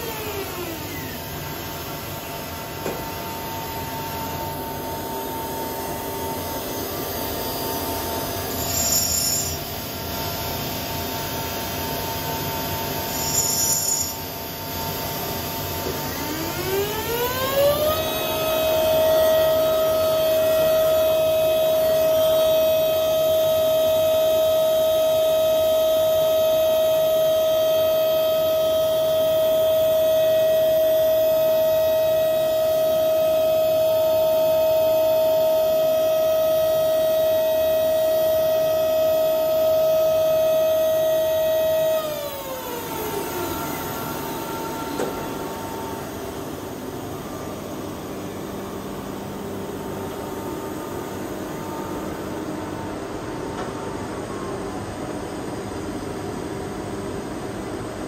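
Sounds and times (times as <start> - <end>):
grinder humming: 8.1 - 9.7.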